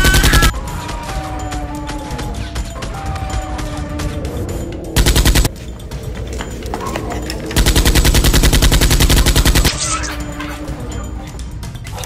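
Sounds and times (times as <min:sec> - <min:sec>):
machine-gun fire: 0:00.0 - 0:00.5, 0:05.0 - 0:05.5, 0:07.6 - 0:09.8
background music: 0:00.0 - 0:12.0.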